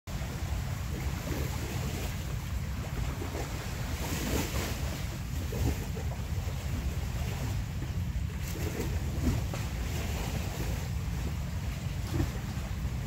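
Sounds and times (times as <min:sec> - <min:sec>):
wind buffeting microphone: 0:00.1 - 0:13.0.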